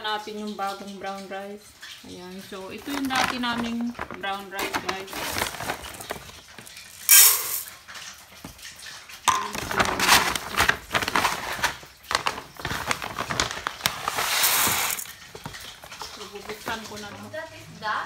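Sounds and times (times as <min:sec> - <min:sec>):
rice bag rustling: 0:02.8 - 0:07.7, 0:09.5 - 0:15.6
rice grains pouring into pot: 0:07.0 - 0:07.8, 0:13.8 - 0:15.1.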